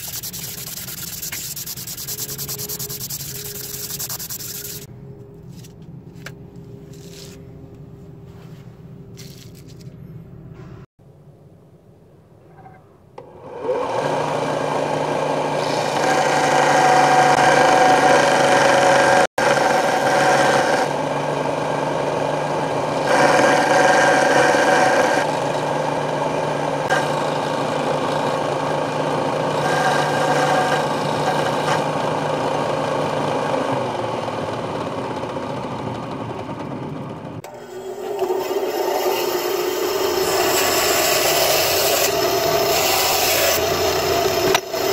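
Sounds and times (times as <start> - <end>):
belt sander motor hum: 0.0 - 4.9
metal grinding on sanding belt: 0.0 - 4.9, 37.6 - 44.9.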